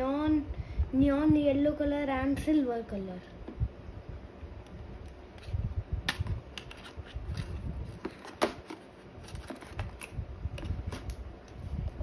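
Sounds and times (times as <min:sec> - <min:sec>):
packaging clicks and rustles: 0:06.5 - 0:11.2.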